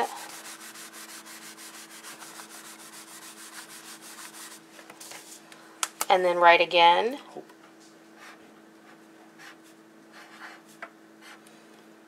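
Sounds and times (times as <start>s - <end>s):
paper towel rubbing a label: 0.0s - 5.3s.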